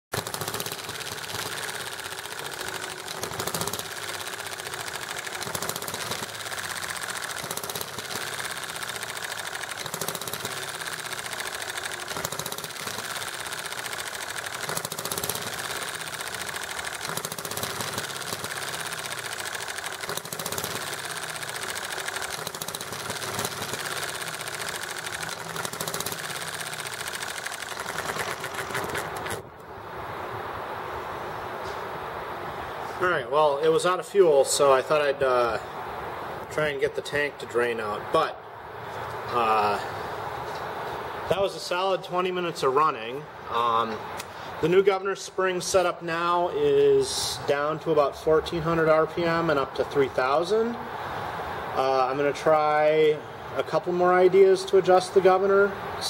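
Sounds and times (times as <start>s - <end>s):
model engine clattering: 0.1s - 29.4s.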